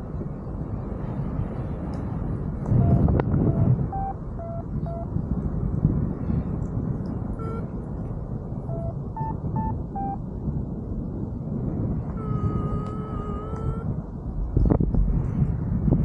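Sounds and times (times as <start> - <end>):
long steady low tone: 0.0 - 16.0
wind rushing over microphone: 0.0 - 16.0
variometer short beeps: 2.8 - 5.1, 7.4 - 7.7, 8.7 - 10.2.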